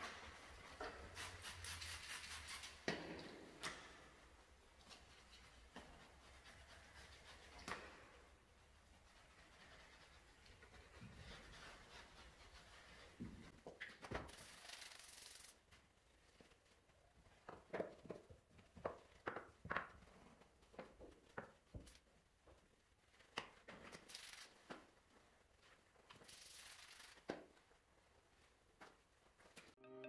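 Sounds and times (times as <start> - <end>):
spray bottle hissing: 14.3 - 15.6, 26.2 - 27.2.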